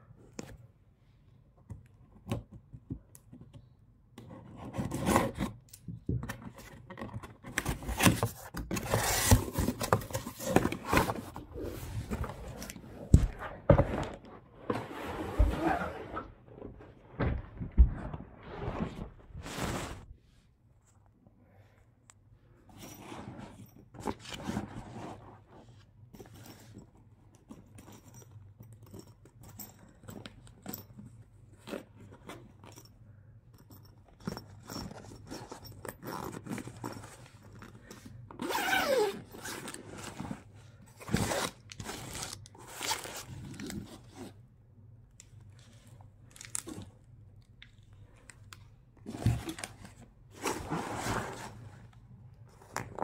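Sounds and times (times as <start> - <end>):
fabric rustling and scraping: 8.8 - 20.4, 22.7 - 26.9, 49.0 - 52.6
zipper being pulled open: 15.0 - 16.3, 38.4 - 40.2.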